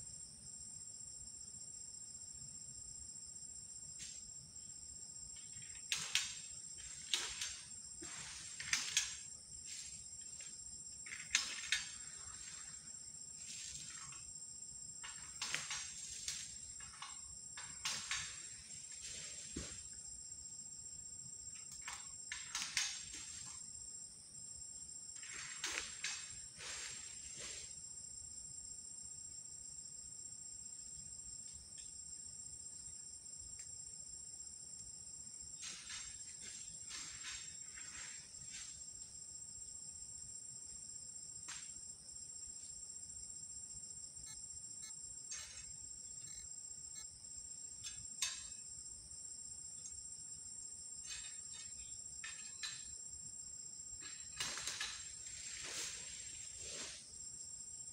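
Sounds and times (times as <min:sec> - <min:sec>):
high-pitched insect chorus: 0:00.0 - 0:57.9
sharp cracks or rustles: 0:05.4 - 0:14.2, 0:15.0 - 0:19.9, 0:21.6 - 0:23.7, 0:25.2 - 0:27.7, 0:54.0 - 0:57.1.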